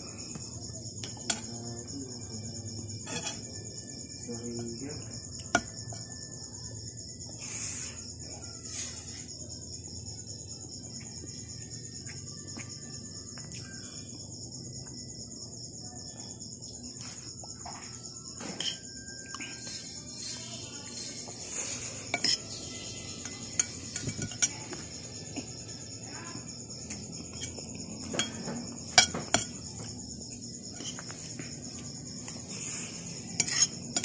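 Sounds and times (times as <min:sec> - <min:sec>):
crickets chirring: 0:00.0 - 0:34.0
metal spoon clinking on plate: 0:03.1 - 0:03.4, 0:22.1 - 0:22.6, 0:23.2 - 0:24.6, 0:27.4 - 0:29.6, 0:33.4 - 0:34.0.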